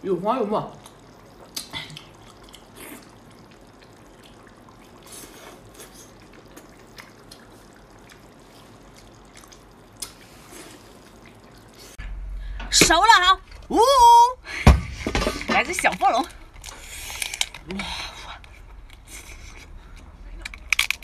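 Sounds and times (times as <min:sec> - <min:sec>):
wet mouth eating sounds: 0:00.8 - 0:12.0.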